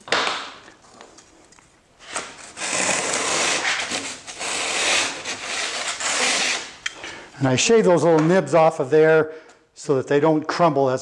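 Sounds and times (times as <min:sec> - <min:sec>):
plane rasping on drywall: 0:02.1 - 0:06.8.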